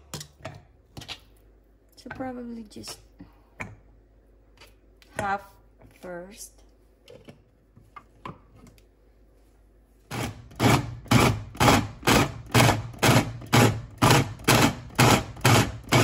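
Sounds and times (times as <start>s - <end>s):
food chopper pulsing: 10.1s - 16.0s.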